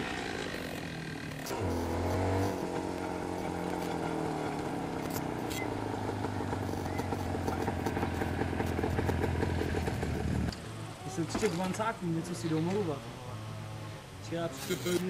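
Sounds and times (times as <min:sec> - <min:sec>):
two-stroke motorcycle engine running: 0:00.0 - 0:10.5.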